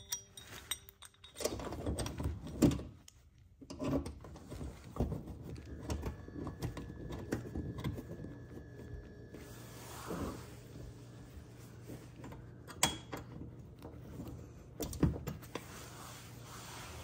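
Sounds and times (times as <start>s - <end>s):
hardware rubbing and scraping: 3.7s - 12.6s, 15.4s - 17.0s.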